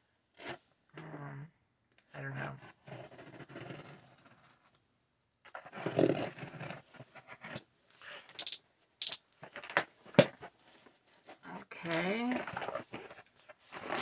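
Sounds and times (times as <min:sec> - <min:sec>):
clicks and knocks of box: 0:08.3 - 0:10.5
cardboard tearing: 0:13.7 - 0:14.0.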